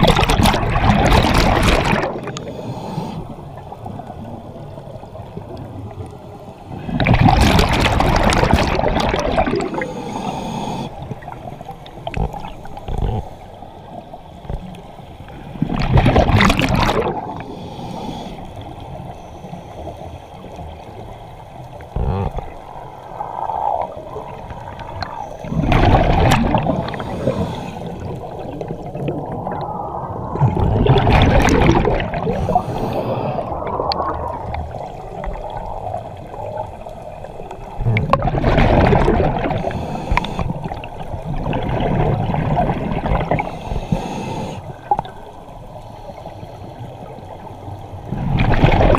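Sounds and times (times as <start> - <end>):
low bubbling: 0.0 - 2.4, 6.8 - 9.8, 15.6 - 17.5, 23.4 - 32.7, 33.3 - 36.6, 37.6 - 43.5
exhaled bubbles from regulator: 0.0 - 3.0, 6.8 - 13.3, 15.6 - 18.4, 23.2 - 36.8, 37.4 - 45.2, 48.1 - 48.9.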